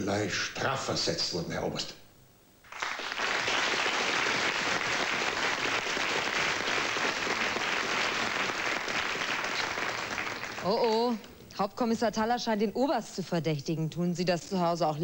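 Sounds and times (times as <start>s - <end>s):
studio audience applauding: 2.6s - 11.2s.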